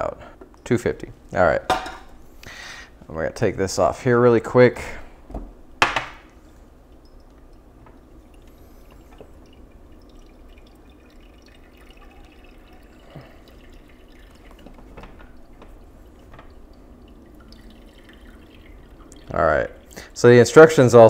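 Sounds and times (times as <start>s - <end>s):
coffee dripping into mug: 5.8s - 20.1s.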